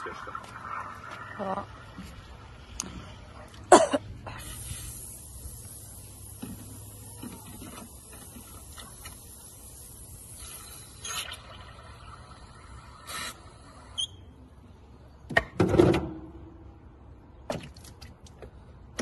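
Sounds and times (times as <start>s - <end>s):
person coughing: 3.7s - 4.0s.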